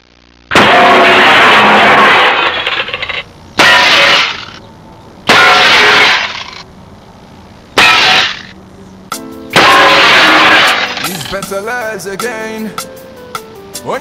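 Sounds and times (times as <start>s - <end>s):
loud crash sound effects: 0.5s - 4.6s, 5.3s - 6.6s, 7.8s - 8.6s, 9.6s - 11.4s.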